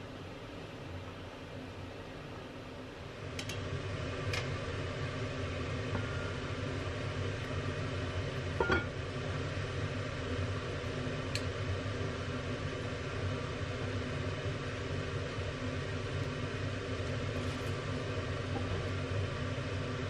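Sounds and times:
pot of water boiling: 0.1s - 20.0s
lid clinking: 8.6s - 8.9s.

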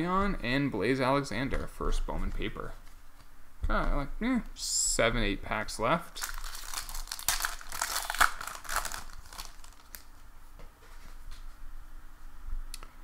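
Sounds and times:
wrapper crinkling and tearing: 6.1s - 10.1s.

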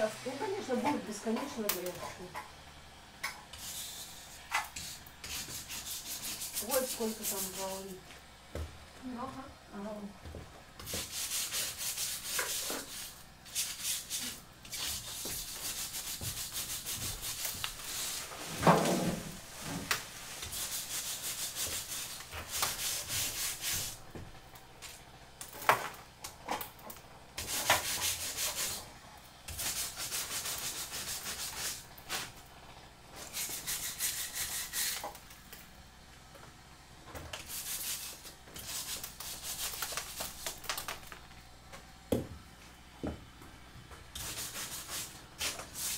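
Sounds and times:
scraper rasping on wall: 3.5s - 8.0s, 10.8s - 18.8s, 19.5s - 24.0s, 27.4s - 28.9s, 29.5s - 32.3s, 33.2s - 35.2s, 37.4s - 41.0s, 44.2s - 45.9s.

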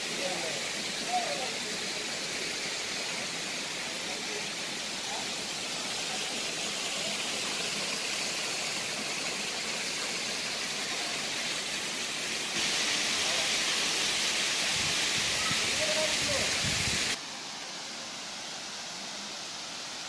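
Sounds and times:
waterfall rushing over rocks: 0.0s - 20.0s.

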